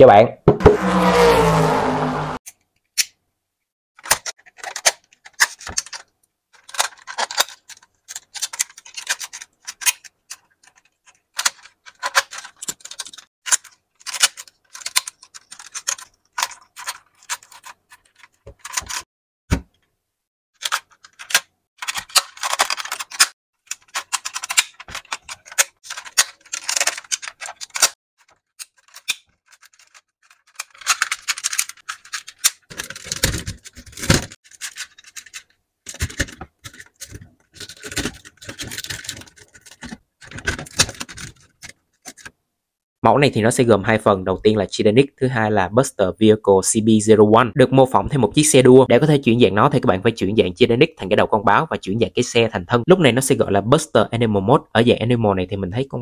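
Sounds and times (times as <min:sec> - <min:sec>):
plastic toy parts clicking: 0:04.0 - 0:19.0, 0:20.6 - 0:42.4
plastic rubbing and rattling: 0:04.0 - 0:19.1, 0:20.6 - 0:42.4.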